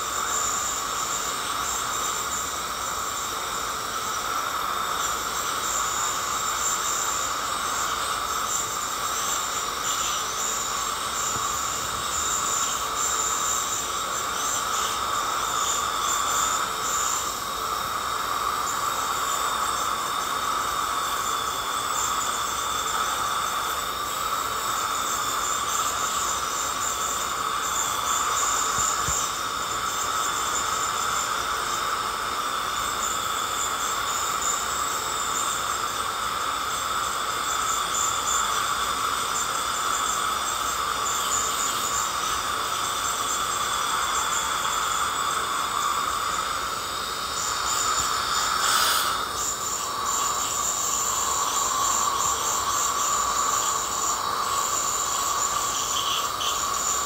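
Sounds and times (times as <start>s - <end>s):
dental scaler high-pitched whine: 0.0s - 57.0s
water spray hiss: 35.4s - 57.0s.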